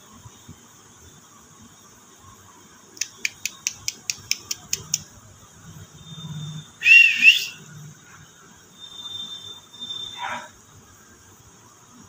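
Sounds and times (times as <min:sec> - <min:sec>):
parakeet whistled call: 0:06.8 - 0:07.6.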